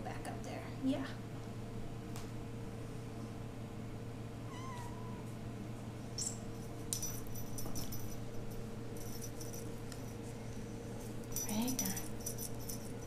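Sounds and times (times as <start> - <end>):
steady low hum: 0.0 - 13.0
kitten meowing: 4.4 - 5.3.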